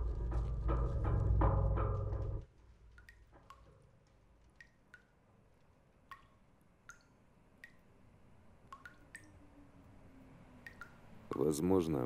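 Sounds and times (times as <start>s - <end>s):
water dripping plinks: 2.9s - 12.0s.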